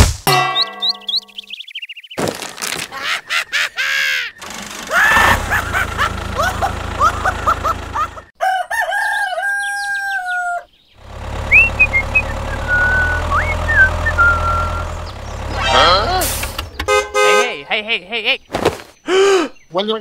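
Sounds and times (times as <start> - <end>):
rooster crowing: 8.4 - 10.7.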